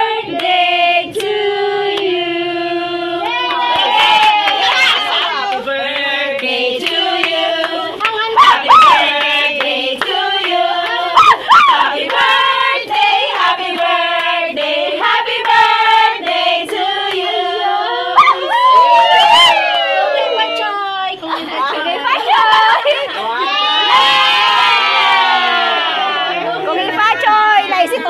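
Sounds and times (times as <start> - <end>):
group singing a birthday song: 0.0 - 19.8
people clapping in rhythm: 0.3 - 2.2, 3.2 - 17.6.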